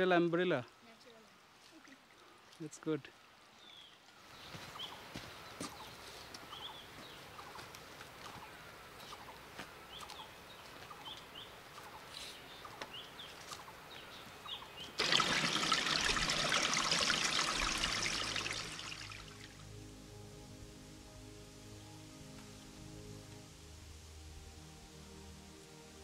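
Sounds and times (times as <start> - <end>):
stream running over stones: 0.0 - 5.3, 14.5 - 19.7
bird chirping: 3.6 - 15.0.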